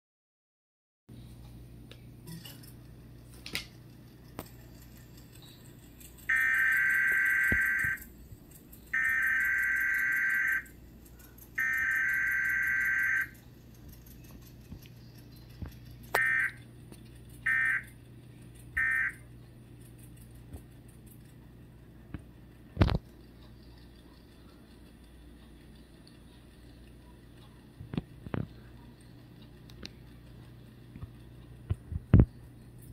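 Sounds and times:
harsh buzzy alert data tones: 6.2 - 8.1, 8.9 - 10.8, 11.6 - 13.4, 16.1 - 16.7, 17.4 - 18.0, 18.8 - 19.2.

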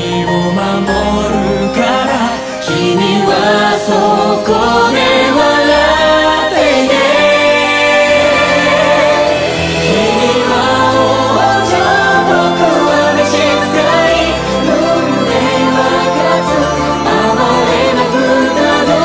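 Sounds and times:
song with singing: 0.0 - 19.0.

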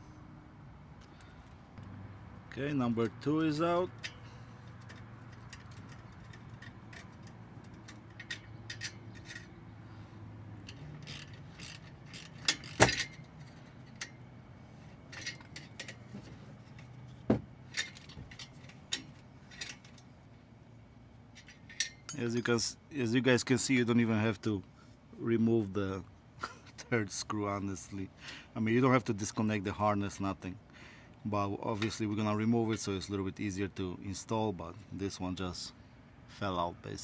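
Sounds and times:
metallic clicks of hand tools: 3.9 - 9.5.

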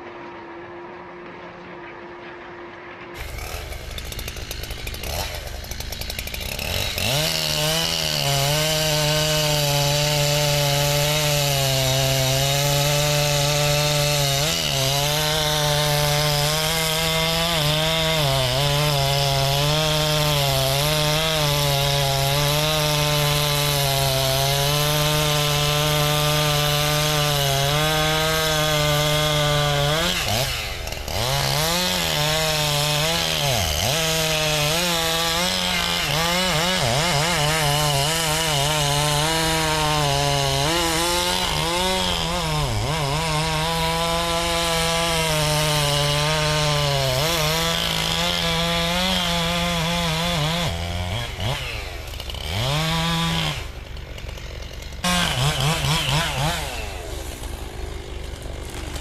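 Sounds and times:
chainsaw cutting tree: 3.1 - 59.0.

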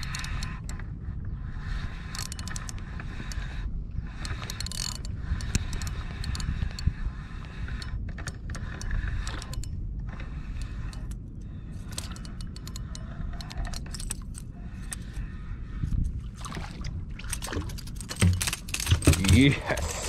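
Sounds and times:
fishing reel clicking: 0.0 - 0.8, 1.6 - 3.5, 4.1 - 15.2
low steady rumble: 0.0 - 20.0.

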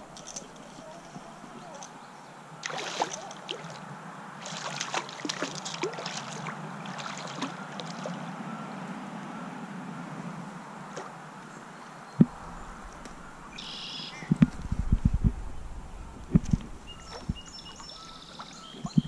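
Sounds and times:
water splashing around legs: 2.6 - 3.8, 4.4 - 8.2
low wash of moving water: 2.6 - 11.4, 12.2 - 13.6.

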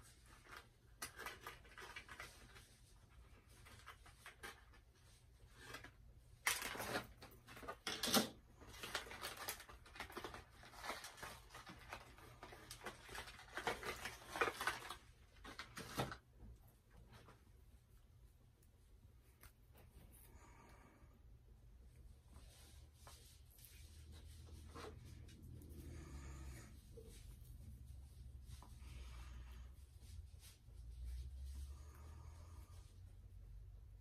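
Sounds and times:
packaging rustling and crackling: 0.3 - 2.6, 5.7 - 16.3.

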